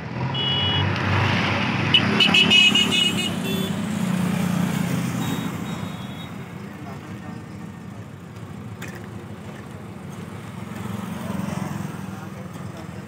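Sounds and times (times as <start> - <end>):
short high-pitched beeps: 0.4 - 0.8, 5.2 - 6.4.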